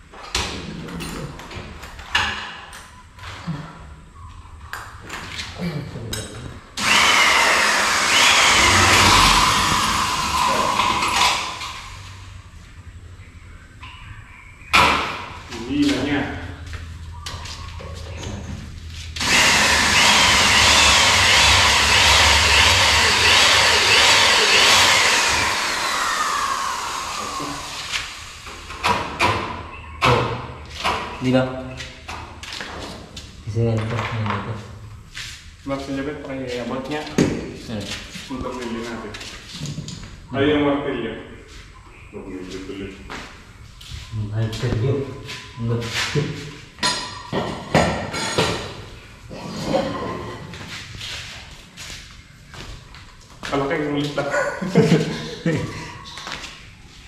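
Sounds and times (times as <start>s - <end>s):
power drill driving screws: 6.8s - 11.9s, 19.2s - 28.8s.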